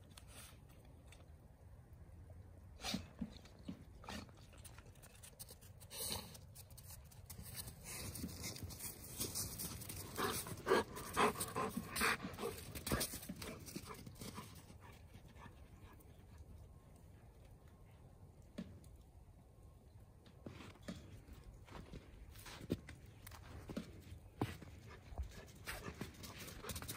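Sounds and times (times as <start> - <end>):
dog panting and sniffing: 7.5 - 16.2, 24.4 - 26.9.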